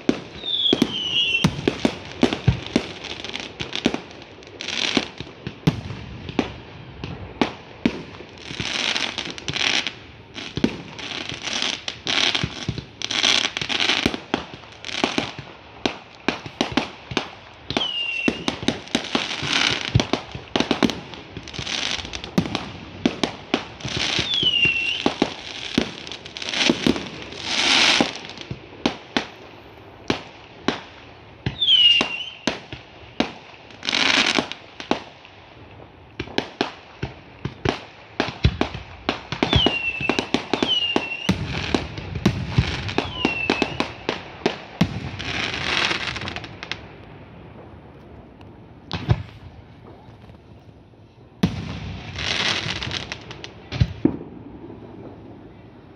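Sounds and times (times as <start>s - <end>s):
fireworks banging: 0.0s - 35.2s, 35.8s - 55.6s
fireworks crackling: 0.0s - 55.9s
falling whistles: 0.4s - 1.5s, 24.2s - 25.1s, 31.6s - 32.5s, 39.5s - 41.3s, 43.0s - 44.0s.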